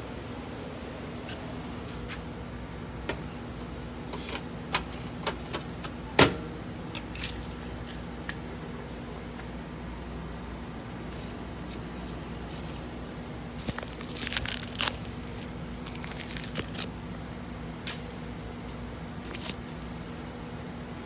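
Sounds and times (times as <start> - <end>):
machine hum: 5.9 - 21.0.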